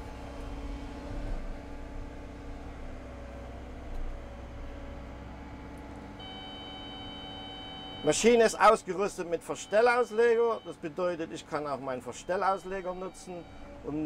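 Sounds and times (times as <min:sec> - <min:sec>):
excavator engine and hydraulics: 0:00.0 - 0:14.0.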